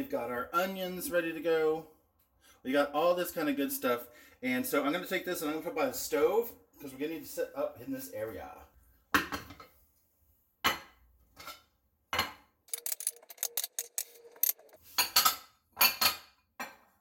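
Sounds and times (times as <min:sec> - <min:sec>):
kitchenware clattering: 0:10.7 - 0:16.9
glass containers clinking: 0:12.7 - 0:16.2.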